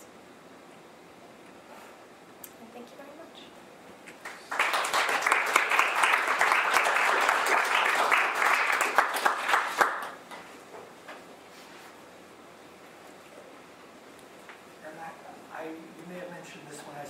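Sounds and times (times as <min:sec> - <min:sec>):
audience applauding: 0:04.2 - 0:10.2.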